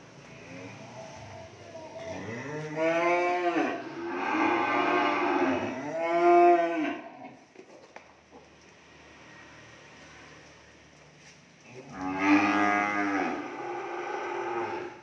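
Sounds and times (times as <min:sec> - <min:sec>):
cattle mooing: 0:02.0 - 0:07.3, 0:11.8 - 0:15.0.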